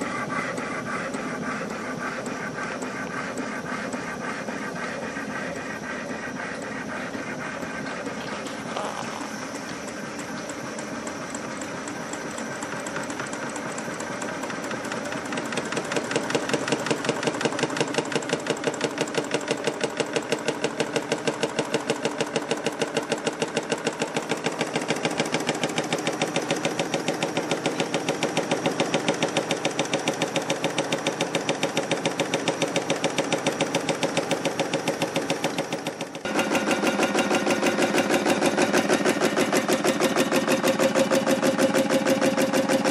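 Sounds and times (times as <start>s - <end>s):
stirling engine rhythmic clatter: 0.0s - 42.9s.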